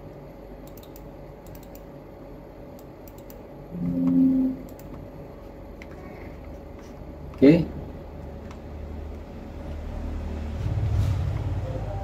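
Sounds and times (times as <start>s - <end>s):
computer mouse clicking: 0.6s - 1.9s, 2.8s - 3.4s, 4.7s - 5.0s
low two-pitch tone: 3.7s - 4.8s.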